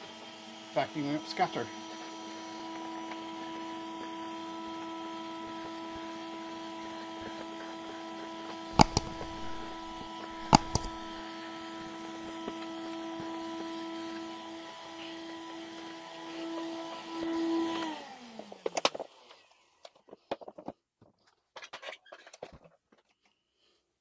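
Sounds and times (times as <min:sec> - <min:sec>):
vacuum cleaner running: 0:00.0 - 0:18.7
sharp double clicks: 0:08.8 - 0:11.2.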